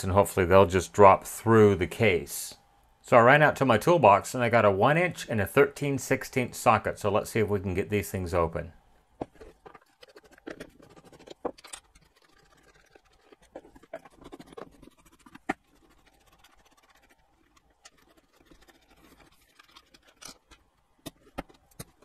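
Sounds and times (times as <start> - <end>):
faint scraping and handling: 9.2 - 22.0.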